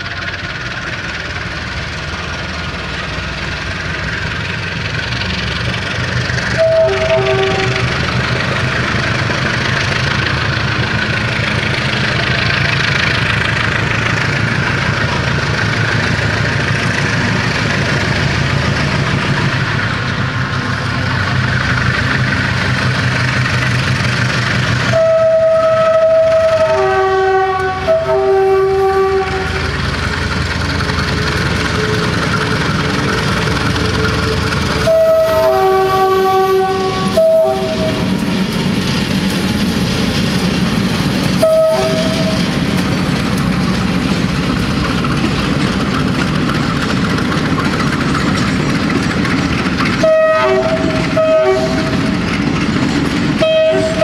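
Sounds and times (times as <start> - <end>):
diesel locomotive engine running: 0.0 - 54.0
locomotive horn: 6.5 - 8.1, 24.8 - 29.8, 31.0 - 38.1, 41.4 - 42.6, 50.0 - 52.2, 53.4 - 54.0.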